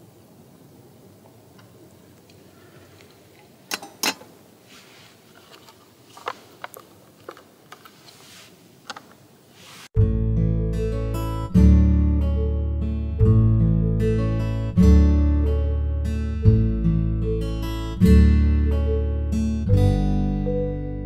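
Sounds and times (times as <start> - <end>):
acoustic guitar music: 10.0 - 21.0.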